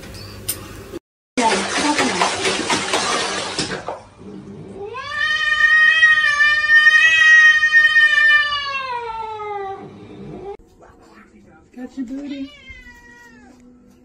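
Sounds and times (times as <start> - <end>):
cat yowling: 4.8 - 10.6, 12.4 - 13.6.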